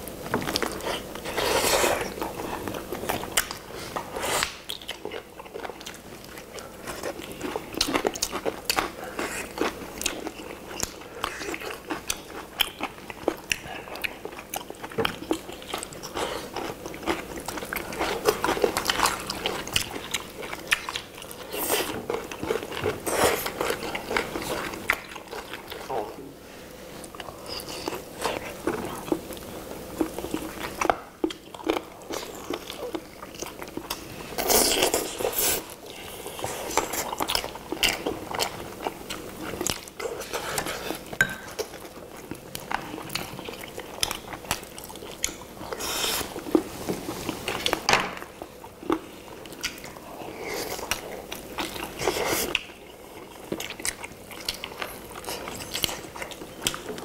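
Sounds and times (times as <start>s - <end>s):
people chewing chicken: 0.0s - 57.0s.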